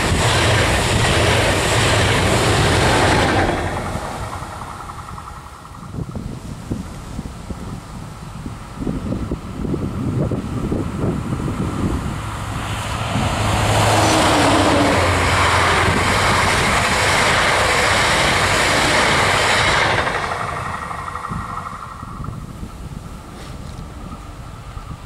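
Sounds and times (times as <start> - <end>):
wheels on rails: 0.0 - 7.7, 10.7 - 22.8
train passing: 0.0 - 25.0.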